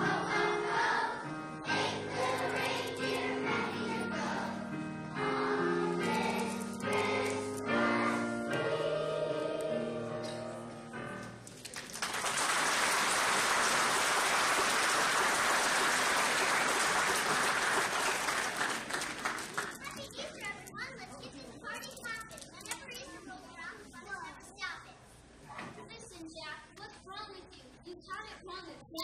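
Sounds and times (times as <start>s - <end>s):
children's choir singing: 0.0s - 11.2s
audience applause: 11.5s - 20.0s.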